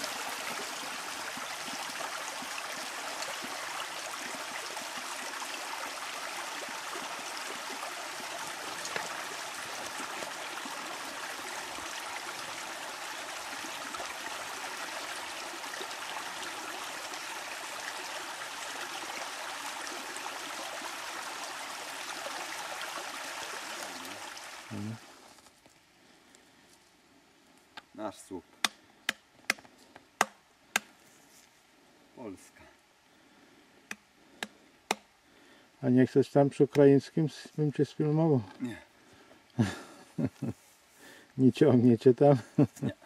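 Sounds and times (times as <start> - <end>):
stream water running: 0.0 - 26.3, 32.9 - 43.0.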